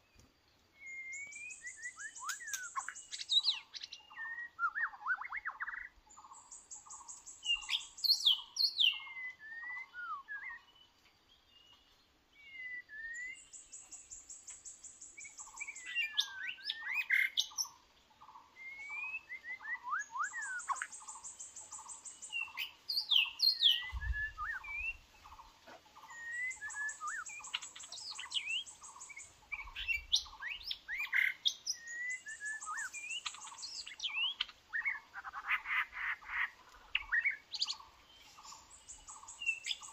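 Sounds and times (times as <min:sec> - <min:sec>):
bird singing whistled phrases: 0:00.8 - 0:05.9, 0:07.4 - 0:10.8, 0:12.4 - 0:14.0, 0:15.1 - 0:17.7, 0:18.6 - 0:25.0, 0:26.1 - 0:39.9
repeated lower bird notes: 0:00.9 - 0:11.0, 0:12.8 - 0:39.9.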